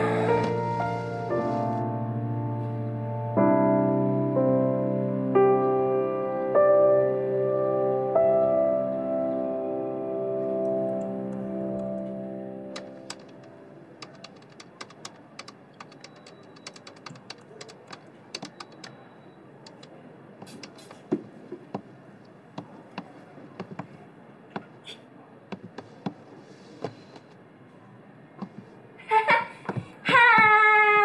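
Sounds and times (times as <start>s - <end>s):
laptop keyboard typing: 12.8s - 19.0s, 19.7s - 23.9s, 25.5s - 27.3s.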